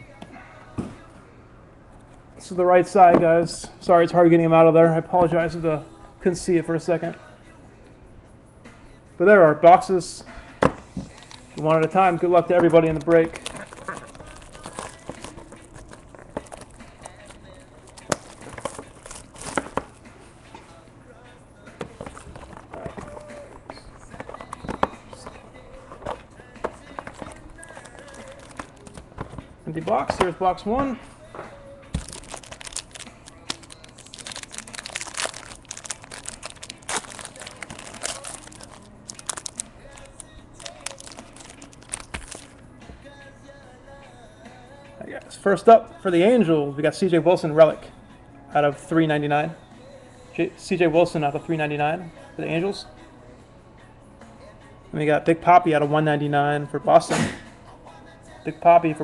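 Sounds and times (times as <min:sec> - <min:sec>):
plastic shrink wrap crinkling: 0:11.1 - 0:11.4, 0:12.6 - 0:19.8, 0:27.0 - 0:29.0, 0:32.0 - 0:42.5.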